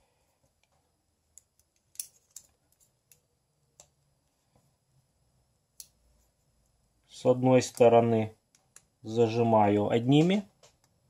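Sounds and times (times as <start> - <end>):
metal parts clicking: 1.4 - 3.2.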